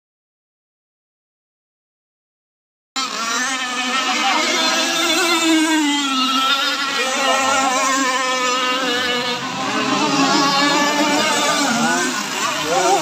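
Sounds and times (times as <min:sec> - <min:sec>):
racing boat engines at high revs: 0:03.0 - 0:13.0.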